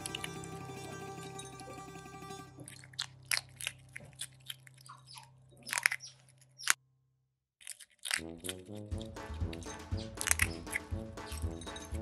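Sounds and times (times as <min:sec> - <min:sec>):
otter chewing food: 0:02.6 - 0:06.8, 0:07.6 - 0:12.0.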